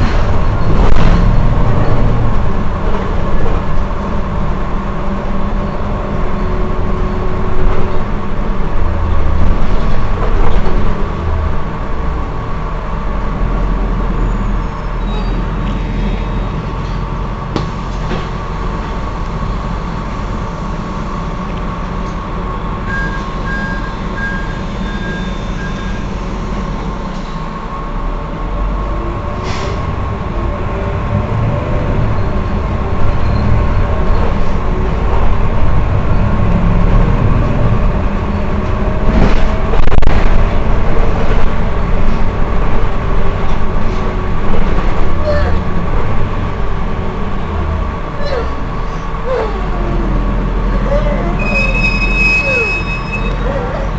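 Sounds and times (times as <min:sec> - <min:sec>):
bus engine idling: 0:00.0 - 0:53.9
short beeps: 0:22.9 - 0:26.1, 0:51.4 - 0:53.4.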